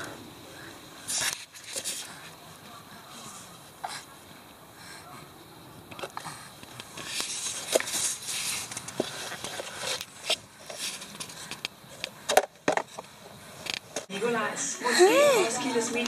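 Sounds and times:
sandbox toys scraping in sand: 7.0 - 11.3.

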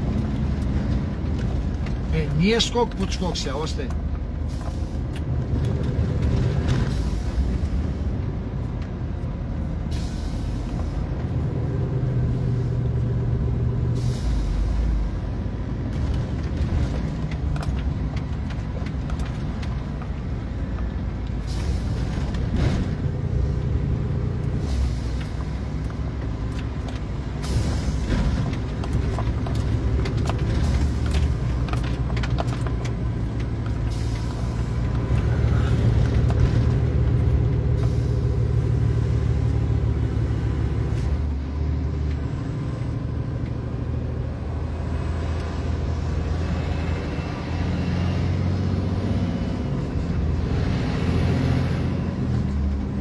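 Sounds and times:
truck engine droning: 0.0 - 53.0.

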